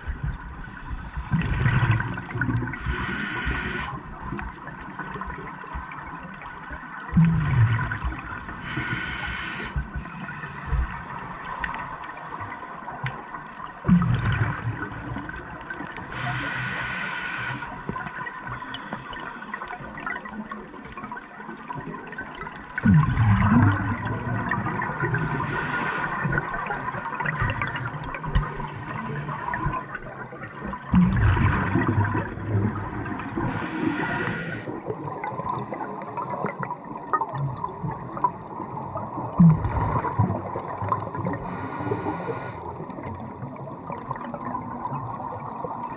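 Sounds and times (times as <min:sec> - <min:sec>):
exhaled bubbles gurgling: 0:00.0 - 0:45.9
regulator hiss: 0:02.8 - 0:04.0, 0:08.6 - 0:09.8, 0:16.2 - 0:17.7, 0:33.5 - 0:34.7, 0:41.5 - 0:42.6.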